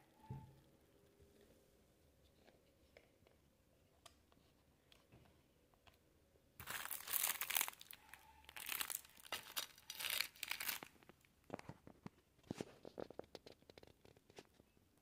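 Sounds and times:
plastic wrapper crinkling: 6.6 - 12.1.

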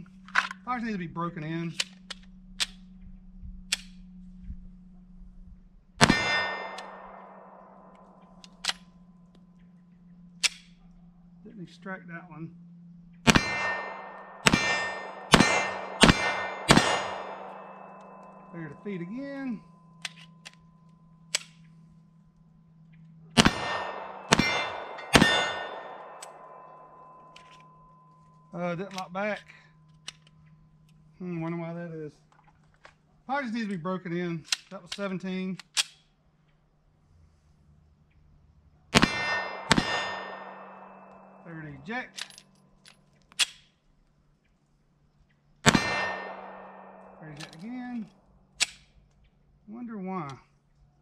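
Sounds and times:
pistol shot: 6.0 - 8.8, 13.2 - 18.9, 23.3 - 27.5, 39.0 - 41.9, 45.6 - 48.0
steel target ringing: 6.0 - 9.2, 13.2 - 21.4, 23.4 - 30.8, 39.0 - 42.1, 45.7 - 48.1.

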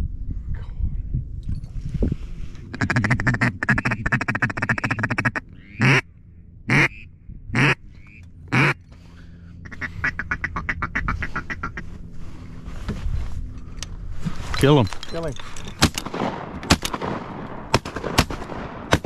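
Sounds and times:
duck call chattering chuckle: 2.7 - 6.0, 6.7 - 7.0
duck call quacks: 2.7 - 6.0, 6.7 - 7.0, 7.6 - 8.8, 9.6 - 11.9.

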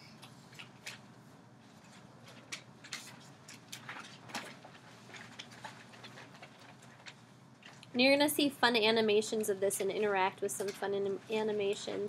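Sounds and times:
low steady hum: 0.0 - 12.0
faint clicks taps and rustles: 1.7 - 8.0.

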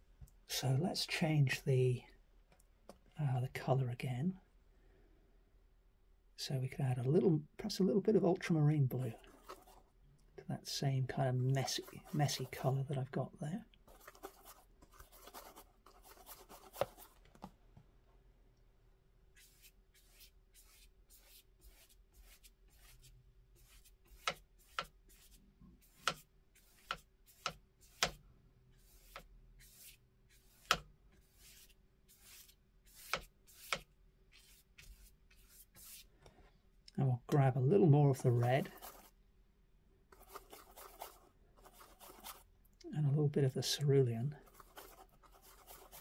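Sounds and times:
brush rubbing paint on palette: 9.1 - 9.9, 11.2 - 12.9, 13.8 - 17.2, 19.3 - 36.2, 38.1 - 39.2, 40.1 - 42.5, 44.3 - 46.0
brush strokes swishing on paper: 11.6 - 12.8, 13.9 - 17.1, 19.4 - 36.2, 38.2 - 39.2, 40.1 - 42.5, 44.4 - 46.0.

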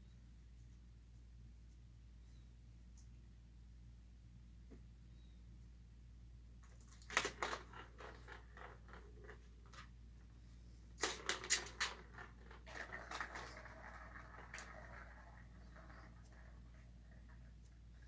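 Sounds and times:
cats scratching toys: 6.6 - 9.9, 11.0 - 17.8.

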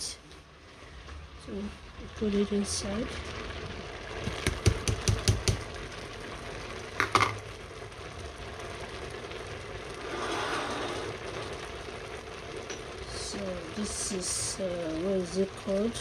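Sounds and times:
simmering pot hissing: 0.0 - 16.0
plastic bowl knocking on steel pot: 4.4 - 5.6, 7.0 - 7.4.

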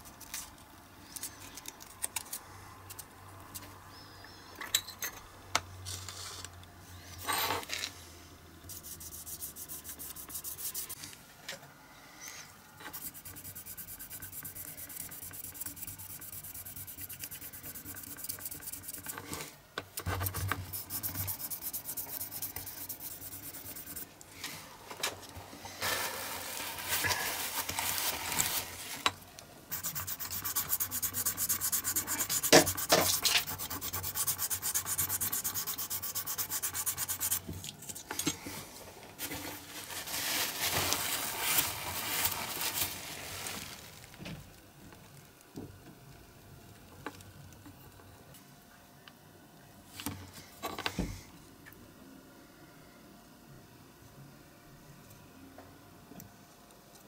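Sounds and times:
sanding metal toy car: 8.7 - 11.0, 12.9 - 19.2, 20.7 - 24.0, 29.7 - 37.4.

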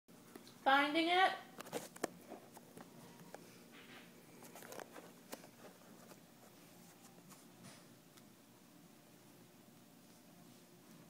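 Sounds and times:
faint clicks and rustles: 1.6 - 8.4.

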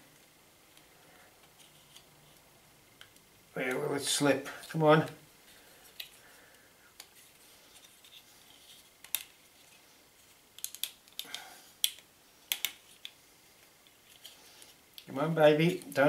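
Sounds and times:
puzzle pieces clicking together: 10.6 - 12.8.

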